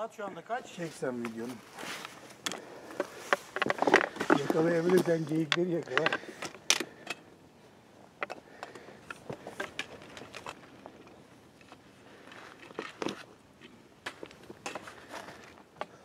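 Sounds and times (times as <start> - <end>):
background hiss: 0.0 - 16.0.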